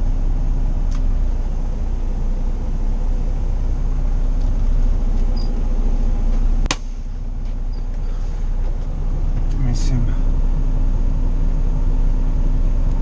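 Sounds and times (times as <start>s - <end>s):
diesel truck engine running: 0.0s - 13.0s.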